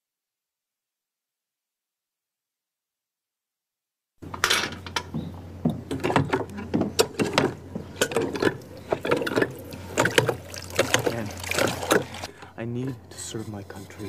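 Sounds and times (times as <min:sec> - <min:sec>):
hand pump clicking and knocking: 0:04.3 - 0:12.3.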